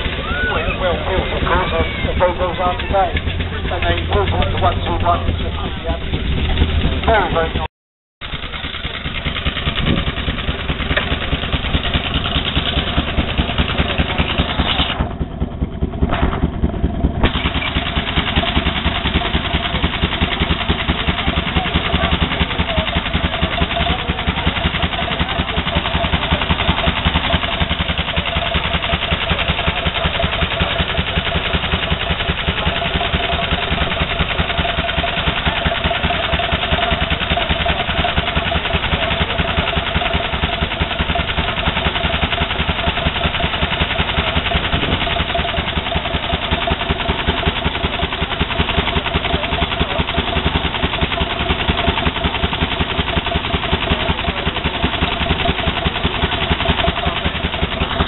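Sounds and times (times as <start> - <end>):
car engine idling: 0.0 - 58.0.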